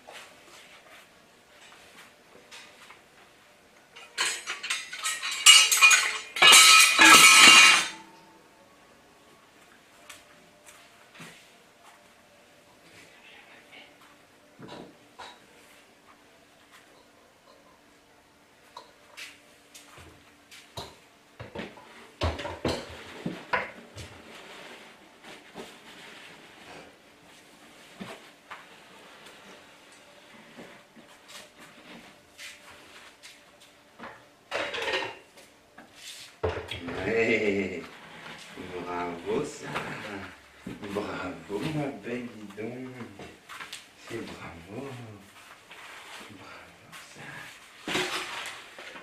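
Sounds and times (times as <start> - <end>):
metal objects rattling: 4.0 - 8.0.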